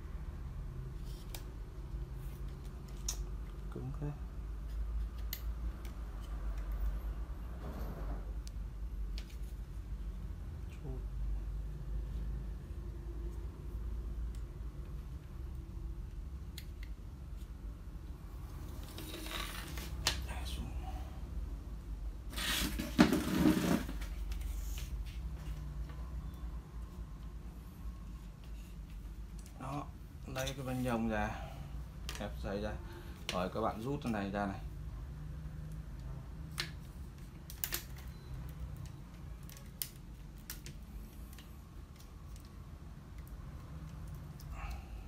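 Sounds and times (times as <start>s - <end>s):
assembly scraping on stone countertop: 18.8s - 20.0s, 22.4s - 24.0s.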